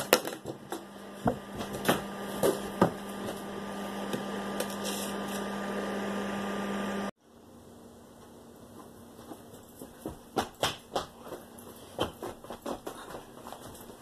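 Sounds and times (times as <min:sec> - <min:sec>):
kitchen appliance humming: 0:00.0 - 0:07.2.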